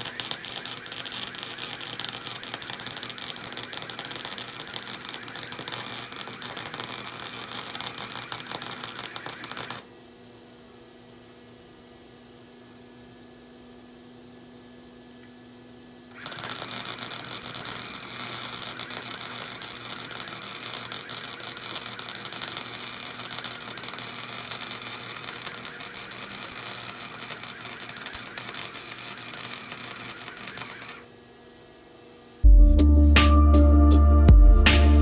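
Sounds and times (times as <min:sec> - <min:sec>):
welder arc crackling: 0:00.0 - 0:09.9, 0:16.1 - 0:31.2.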